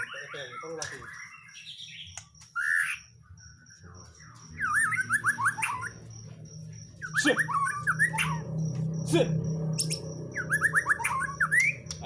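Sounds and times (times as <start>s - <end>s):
songbird singing whistled notes: 0.0s - 6.1s, 7.0s - 8.6s, 9.8s - 12.0s.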